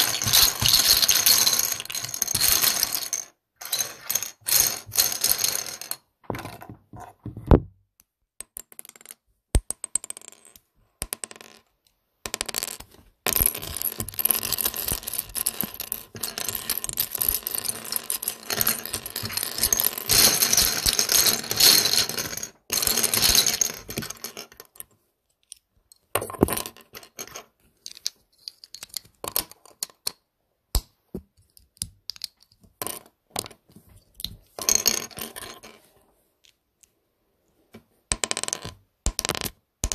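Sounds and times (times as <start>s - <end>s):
plastic bricks clicking and clattering: 0.0s - 7.6s, 12.3s - 30.2s, 31.4s - 35.7s, 38.1s - 39.9s.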